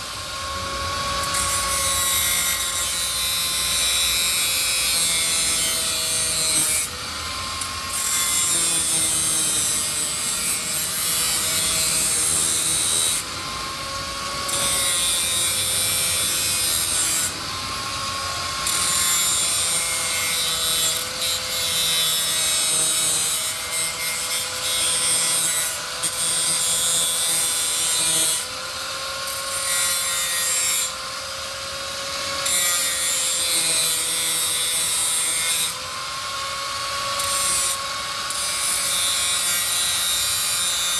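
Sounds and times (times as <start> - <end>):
angle grinder motor whine: 0.0 - 30.1
grinder grinding metal: 0.0 - 40.9.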